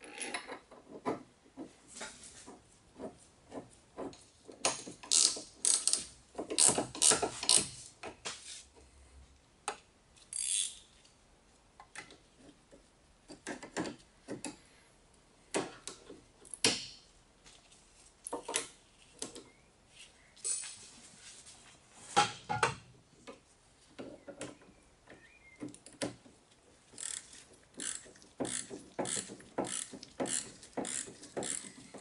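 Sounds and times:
ratchet wrench clicking: 4.7s - 7.7s, 10.3s - 10.9s, 27.0s - 31.7s.

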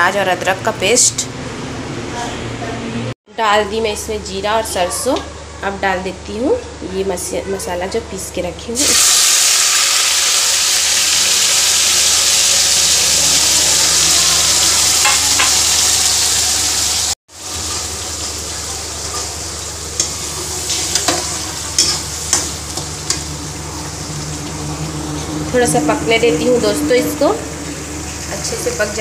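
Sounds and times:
paste sizzling in hot oil: 8.8s - 23.3s.

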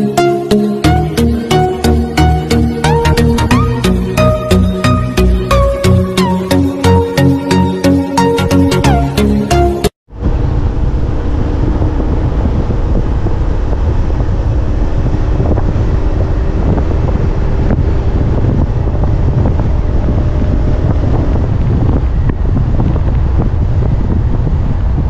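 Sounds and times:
wind buffeting microphone: 10.1s - 25.0s.

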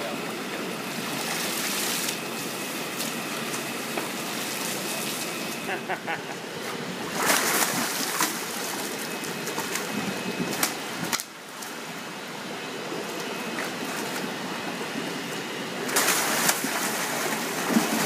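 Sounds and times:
fish thrashing in water: 7.1s - 11.2s, 15.8s - 18.0s.

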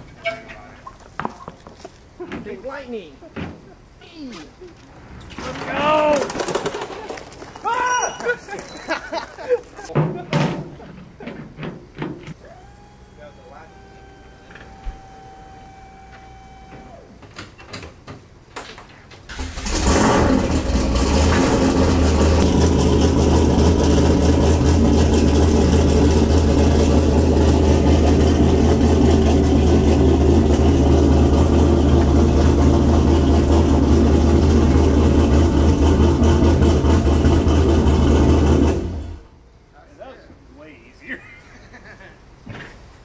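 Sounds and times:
car engine starting and idling: 12.3s - 17.6s, 19.3s - 39.4s.

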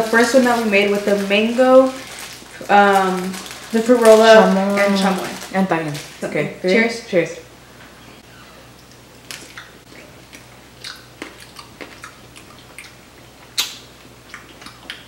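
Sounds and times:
people chewing with loud smacking: 8.8s - 15.0s.

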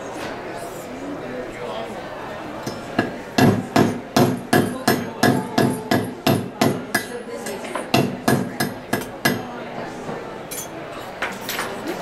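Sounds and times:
hammer striking metal on anvil: 3.0s - 7.2s, 7.9s - 9.5s.

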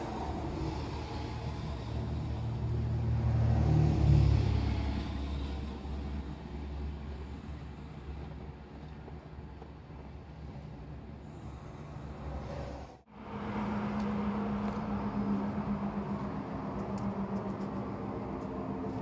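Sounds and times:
vehicle passing by rumbling: 0.0s - 6.7s, 11.8s - 19.0s.

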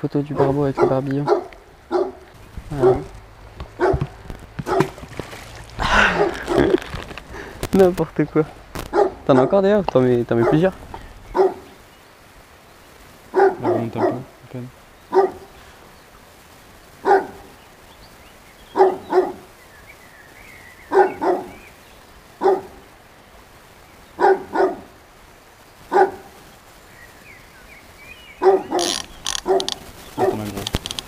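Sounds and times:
dog barking: 0.4s - 3.1s, 3.8s - 5.0s, 6.0s - 6.7s, 8.9s - 9.6s, 10.4s - 11.8s, 13.3s - 14.4s, 15.1s - 15.5s, 17.0s - 17.5s, 18.7s - 19.5s, 20.9s - 21.6s, 22.4s - 22.8s, 24.2s - 25.0s, 25.9s - 26.4s, 28.4s - 30.6s.

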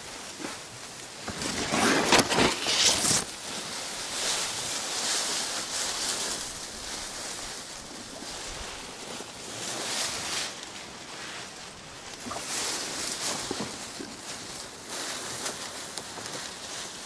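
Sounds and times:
water splashing: 12.1s - 14.5s.

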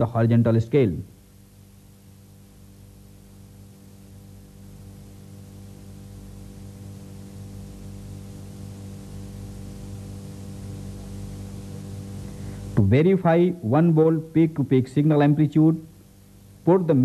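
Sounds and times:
electrical mains hum: 0.0s - 17.0s
faint hiss: 0.0s - 17.0s.

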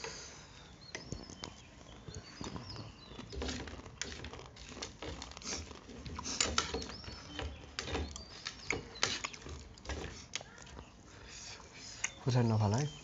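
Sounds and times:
cutlery scraping and clinking on plates: 3.3s - 10.2s.

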